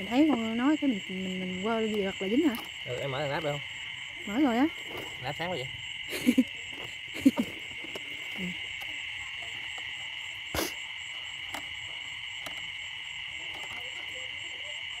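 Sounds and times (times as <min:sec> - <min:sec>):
frogs chorus: 0:00.0 - 0:15.0.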